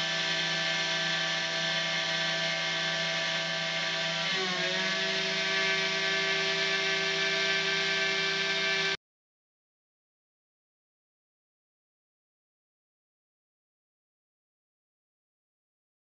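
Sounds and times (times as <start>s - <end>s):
rough metal cutting noise: 0.0s - 9.0s
router spindle whine: 0.0s - 9.0s.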